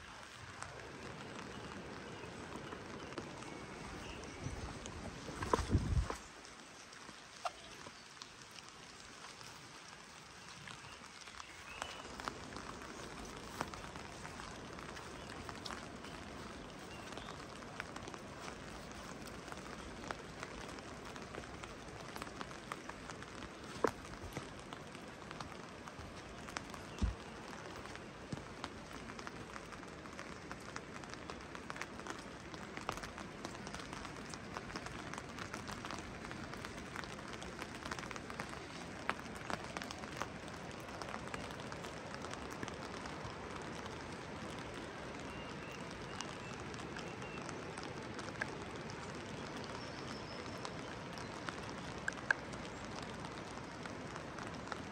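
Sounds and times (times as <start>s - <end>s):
steady rain: 0.0s - 54.9s.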